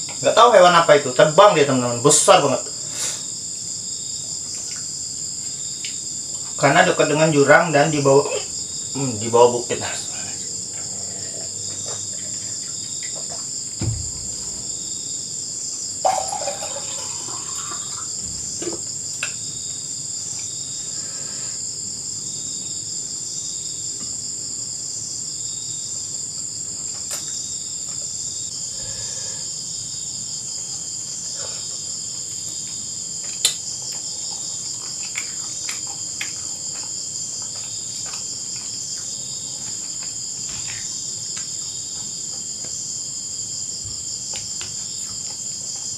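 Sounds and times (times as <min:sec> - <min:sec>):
soft pulsing insect trill: 0:00.1 - 0:45.9
high-pitched insect trilling: 0:16.0 - 0:21.7.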